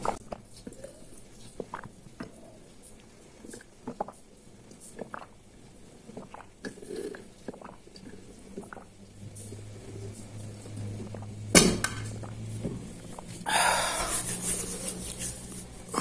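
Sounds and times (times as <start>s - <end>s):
wet mouth clicks: 0.0s - 2.6s, 3.4s - 5.4s, 6.1s - 10.2s
person gulping water: 0.0s - 11.4s, 12.1s - 14.2s.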